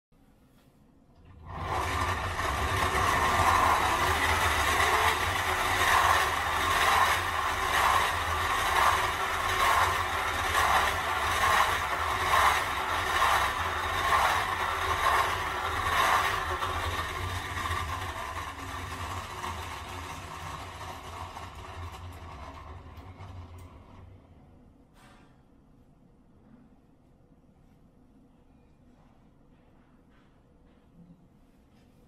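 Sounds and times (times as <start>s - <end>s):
plastic gears whirring: 1.3s - 24.2s.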